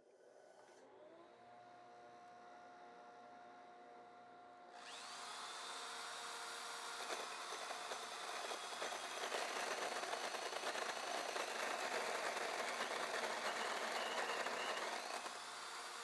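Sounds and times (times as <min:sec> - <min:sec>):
drill motor whine: 0:00.9 - 0:16.0
hole saw cutting wood: 0:04.8 - 0:16.0.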